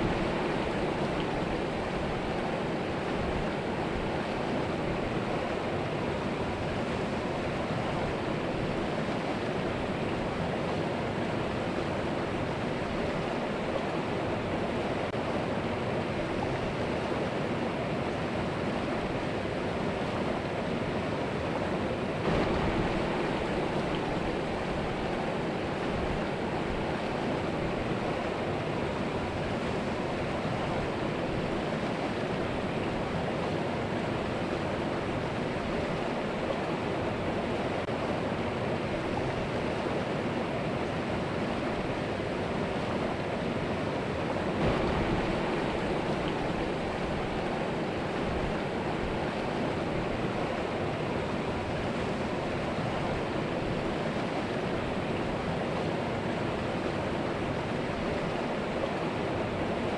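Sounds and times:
river water rushing: 0.0 - 59.9.

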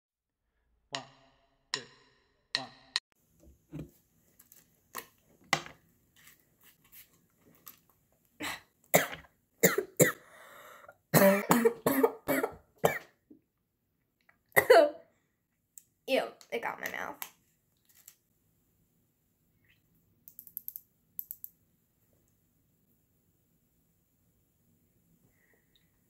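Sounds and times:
girl coughing: 8.4 - 10.2, 11.1 - 13.1, 14.6 - 15.0.

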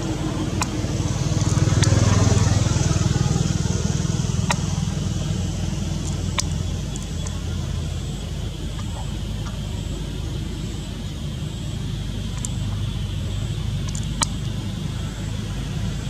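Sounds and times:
vehicle engine rumbling: 0.0 - 16.0
sharp tick: 0.5 - 3.2, 4.1 - 5.4, 6.0 - 7.5, 12.3 - 12.6, 13.8 - 14.5.

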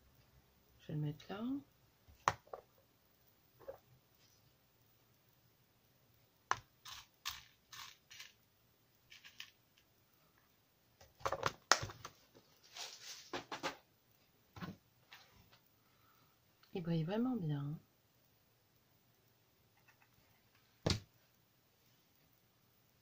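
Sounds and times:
rhinestones rustling in plastic box: 6.8 - 8.4, 9.1 - 9.9.

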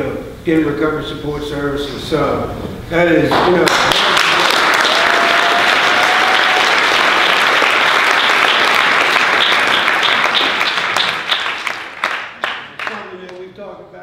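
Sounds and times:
crowd applauding: 3.3 - 13.5.

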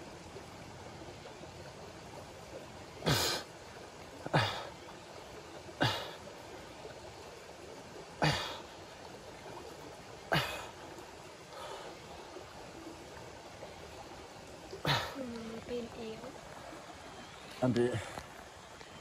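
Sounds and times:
stream rushing: 0.0 - 19.0.

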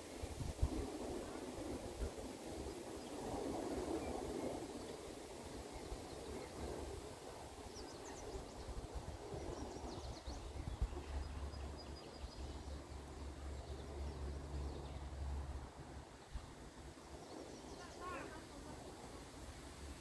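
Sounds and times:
steady low rumble: 6.2 - 20.0.

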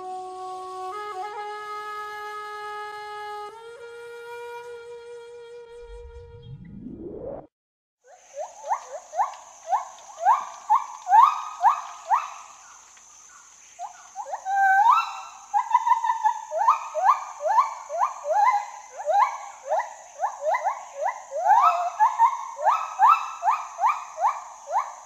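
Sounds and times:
steady high hiss: 8.1 - 25.0
gibbon whooping calls: 8.3 - 12.6, 13.8 - 25.0.

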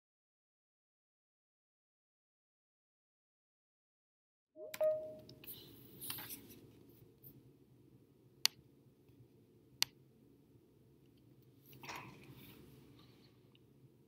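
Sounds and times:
brief tone: 4.6 - 5.4
faint low room hum: 4.6 - 14.0.

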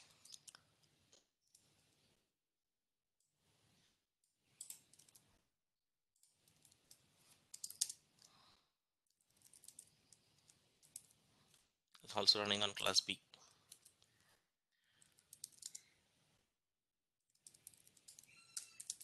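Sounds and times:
computer keyboard typing: 17.4 - 19.0.

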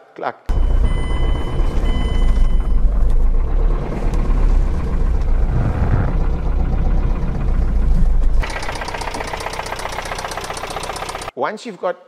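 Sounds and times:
car engine knocking at low revs: 2.8 - 11.3.

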